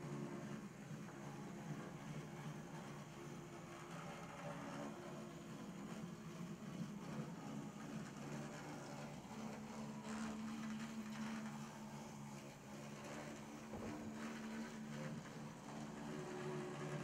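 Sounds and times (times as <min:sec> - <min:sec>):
model train motor humming: 0:00.0 - 0:17.0.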